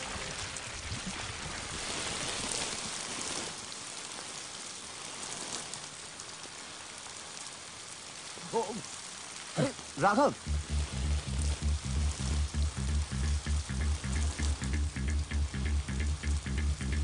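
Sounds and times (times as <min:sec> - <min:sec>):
liquid spraying from a hose: 0:00.1 - 0:09.7.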